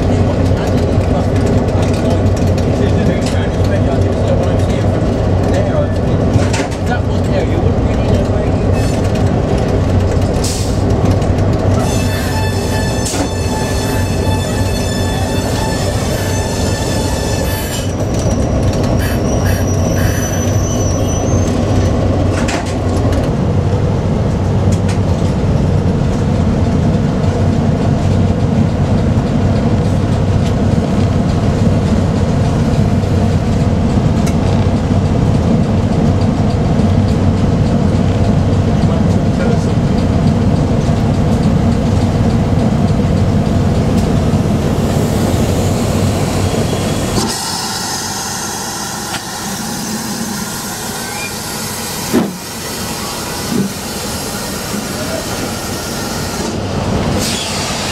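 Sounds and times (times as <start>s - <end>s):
diesel locomotive running: 0.0s - 57.9s
steam hissing: 44.8s - 57.9s.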